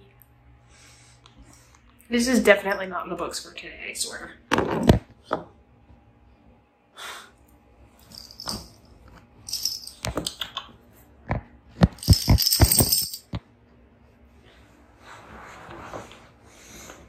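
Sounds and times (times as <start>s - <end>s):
collar tag jingling: 8.1s - 8.8s, 9.5s - 10.0s, 12.0s - 13.2s.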